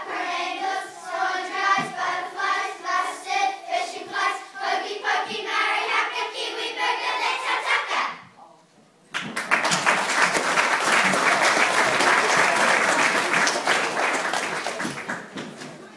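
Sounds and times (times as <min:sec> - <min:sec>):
children singing: 0:00.0 - 0:08.3
audience clapping: 0:09.1 - 0:15.9.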